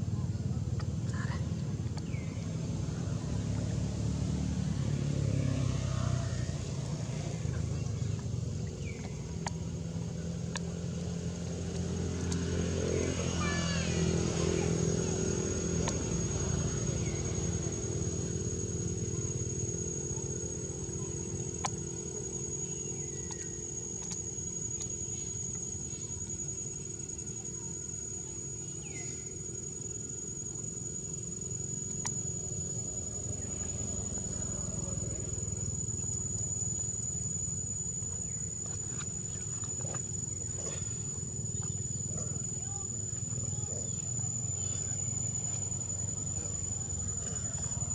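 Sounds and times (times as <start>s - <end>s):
low engine-like hum: 0.0s - 47.9s
high-pitched insect drone: 1.4s - 47.9s
faint clicks: 8.9s - 9.6s, 31.8s - 32.2s.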